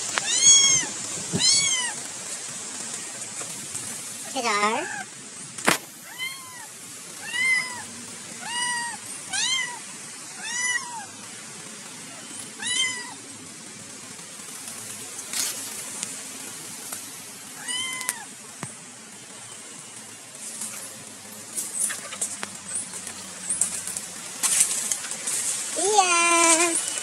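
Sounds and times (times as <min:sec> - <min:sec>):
cat meowing: 0:06.0 - 0:11.1, 0:12.2 - 0:13.2, 0:17.6 - 0:18.3.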